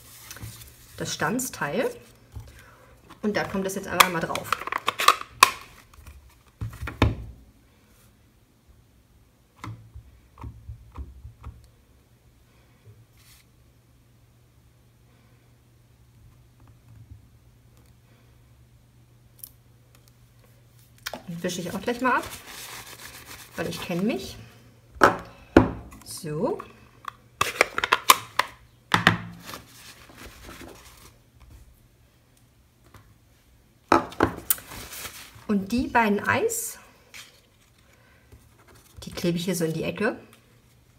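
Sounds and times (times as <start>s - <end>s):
paper rustling: 0.0s - 1.0s, 21.6s - 24.1s, 29.4s - 31.6s, 34.5s - 35.5s.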